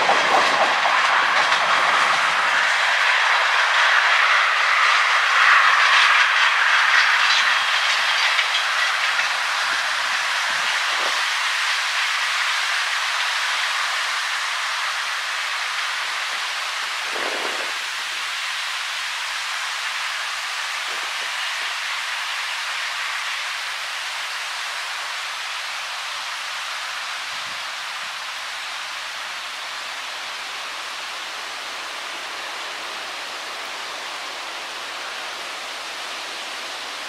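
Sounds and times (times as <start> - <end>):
steel wheels hissing on track: 0.0 - 37.0.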